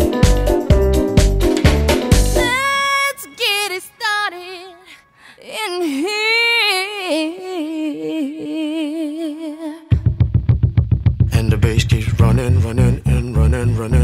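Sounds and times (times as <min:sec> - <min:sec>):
woman singing unaccompanied: 0:02.4 - 0:10.0.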